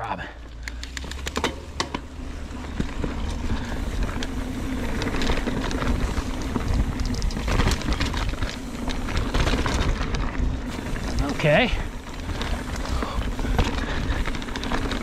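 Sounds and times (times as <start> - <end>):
bike clicking and rattling: 0.0 - 15.0
bike tyres rolling on dirt: 0.0 - 15.0
wind rumble: 0.5 - 15.0.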